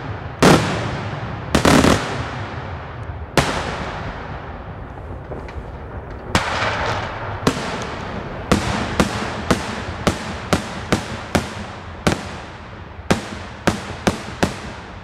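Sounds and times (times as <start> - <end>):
fireworks bangs echoing: 0.0 - 15.0.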